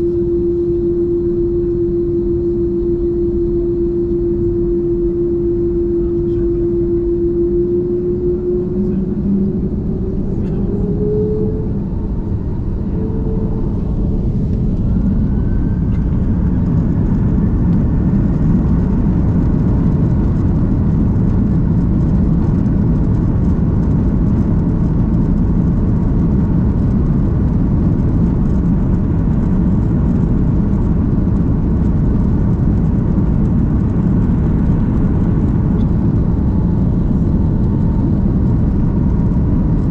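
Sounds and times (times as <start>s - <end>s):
jet engines spooling up: 0.0s - 39.9s
rising engine whine: 0.0s - 39.9s.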